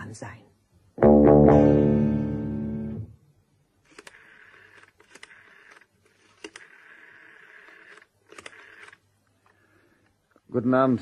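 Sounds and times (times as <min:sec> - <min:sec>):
rotary dial clicks: 0:03.9 - 0:09.0
rotary dial whirring: 0:03.9 - 0:09.6.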